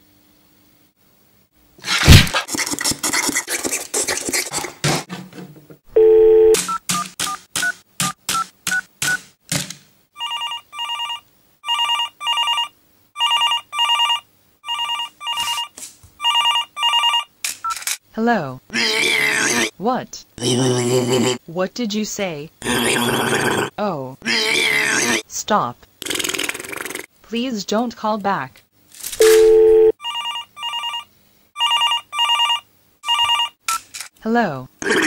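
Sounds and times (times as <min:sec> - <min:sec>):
telephone ringing: 0:06.0 - 0:06.6, 0:10.2 - 0:17.3, 0:29.2 - 0:33.6
keypad dialling beeps: 0:06.0 - 0:06.8, 0:29.2 - 0:33.5.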